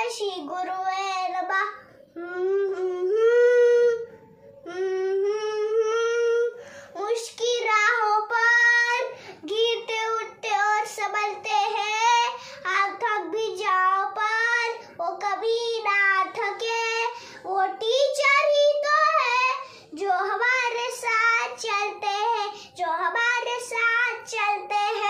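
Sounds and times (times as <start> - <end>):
young boy singing: 0.0 - 25.0.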